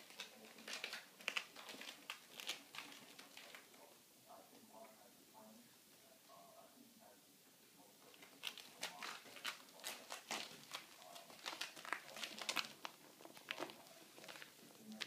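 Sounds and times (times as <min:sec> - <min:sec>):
claws scratching ribbed plastic hose: 0:00.0 - 0:03.9, 0:08.0 - 0:15.0.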